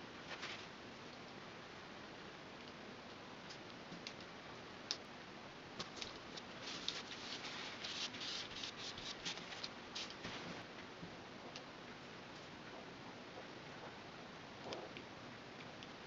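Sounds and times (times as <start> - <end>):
hands rubbing straw on paper: 6.3 - 10.6.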